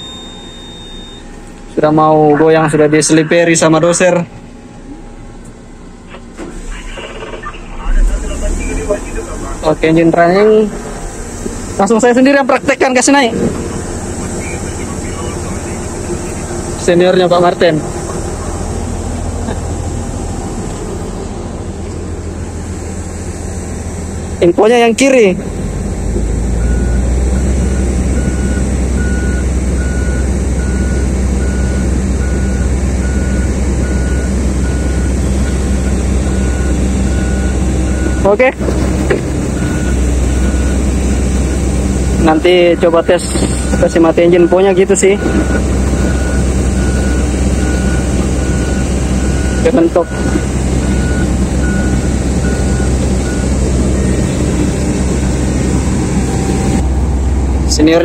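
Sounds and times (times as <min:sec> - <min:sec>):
warning beeper short beeps: 0:00.0 - 0:03.8
warning beeper: 0:00.0 - 0:38.6, 0:39.5 - 0:56.8
excavator engine rumbling: 0:00.0 - 0:58.0.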